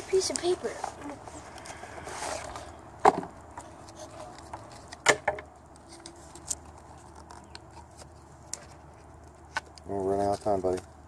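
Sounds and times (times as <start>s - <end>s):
paper and packaging crackling: 3.4s - 11.0s.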